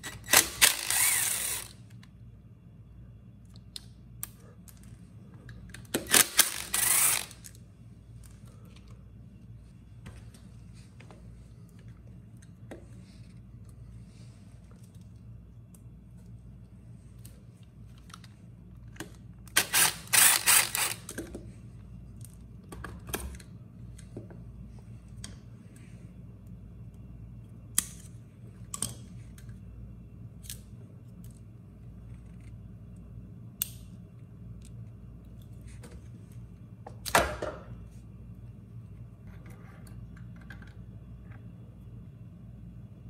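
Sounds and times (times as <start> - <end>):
cordless power driver: 0.0 - 1.8, 6.0 - 7.4, 19.6 - 21.1.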